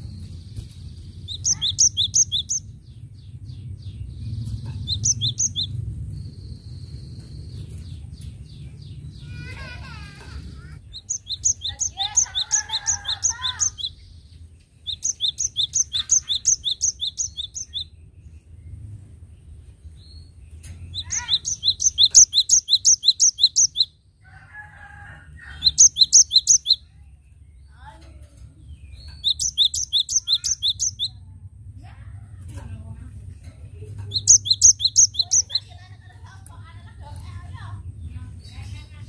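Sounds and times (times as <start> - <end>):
soft bird chattering: 0.6 - 2.7, 4.3 - 5.8, 7.6 - 17.9, 20.6 - 23.9, 25.6 - 26.9, 27.7 - 31.2, 32.5 - 39.0
bird singing ringing notes: 1.2 - 2.7, 4.8 - 7.8, 20.1 - 23.9, 28.7 - 31.2, 34.1 - 35.7.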